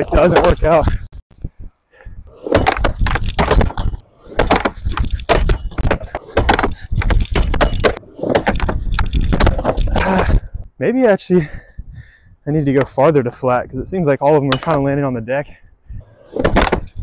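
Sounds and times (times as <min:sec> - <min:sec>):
skateboard knocking on wood: 0:02.4 - 0:09.8, 0:16.3 - 0:17.0.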